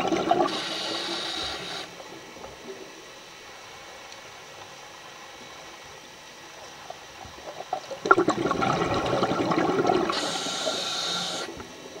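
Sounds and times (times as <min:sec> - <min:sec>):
underwater breath bubbling: 0:00.0 - 0:02.0, 0:08.0 - 0:11.6
high hiss: 0:00.2 - 0:07.4, 0:09.9 - 0:12.0.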